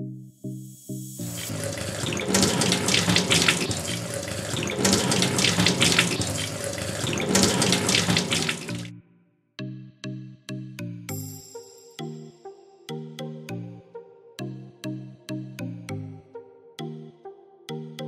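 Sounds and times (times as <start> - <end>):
hands rinsed under water: 1.2 - 8.9
water running from a tap: 1.2 - 8.9.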